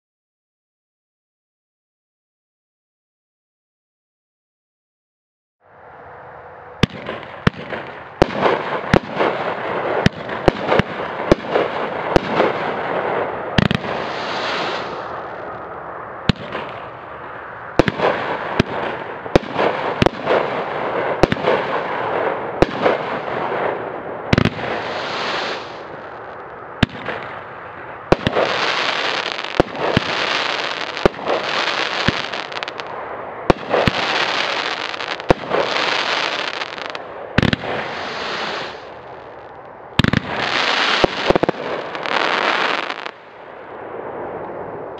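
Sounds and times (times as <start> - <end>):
firework sharp reports: 5.8 - 44.9
firework hissing: 7.1 - 32.9, 33.5 - 43.2.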